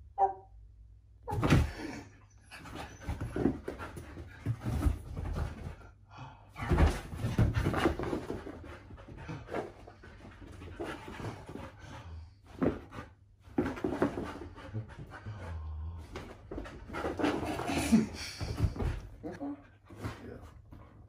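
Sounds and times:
dog panting: 13.8 - 21.0.

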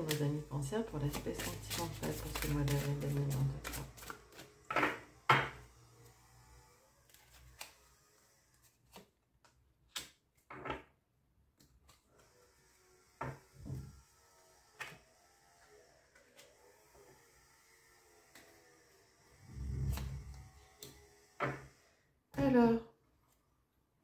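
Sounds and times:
cards being shuffled: 0.0 - 0.4, 1.0 - 4.6, 7.1 - 7.9, 8.6 - 9.2.

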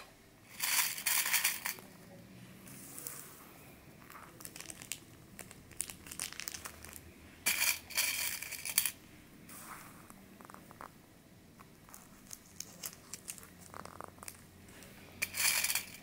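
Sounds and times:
pins clicking in metal tin: 0.5 - 1.9, 4.4 - 9.0, 15.2 - 16.0.

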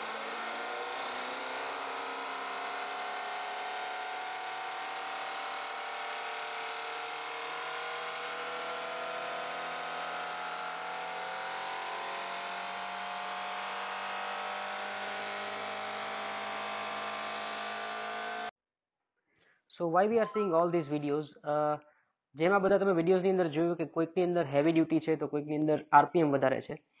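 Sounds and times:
engine whining at high revs: 0.0 - 18.5.

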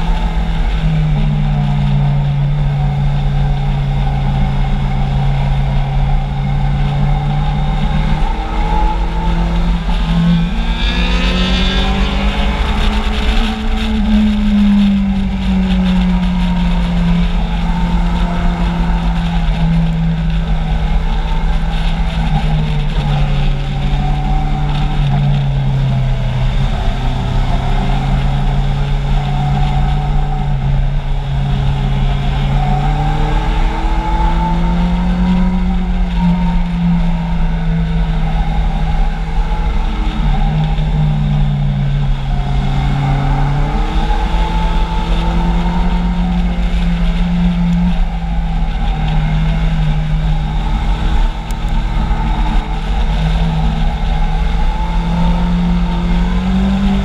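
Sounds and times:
motorcycle engine revving: 0.0 - 57.0
wind rumble on microphone: 0.0 - 57.0.

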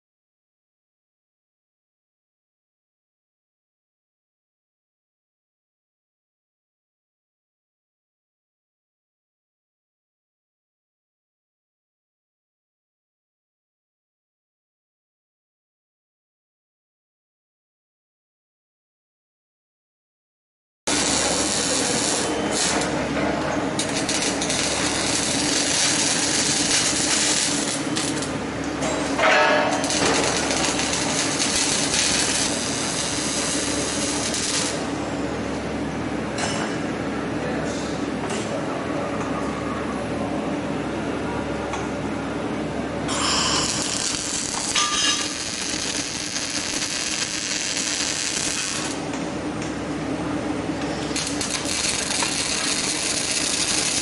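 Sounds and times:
welding arc crackle and hiss: 20.9 - 35.0, 43.1 - 49.2, 51.0 - 54.0
low machine hum: 20.9 - 54.0.

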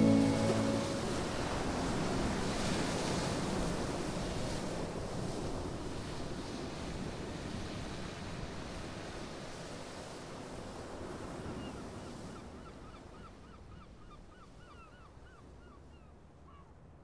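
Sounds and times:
wind: 0.0 - 17.0.

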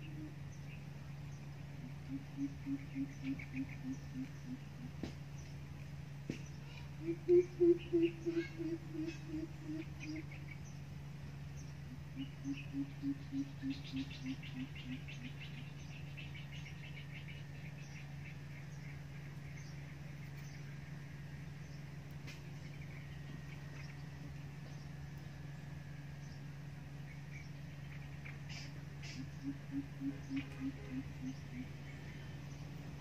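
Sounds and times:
bird deep hooting call: 0.0 - 0.5, 1.8 - 5.0, 7.0 - 10.4, 11.8 - 15.6, 28.5 - 32.0
steady low hum: 0.0 - 33.0.

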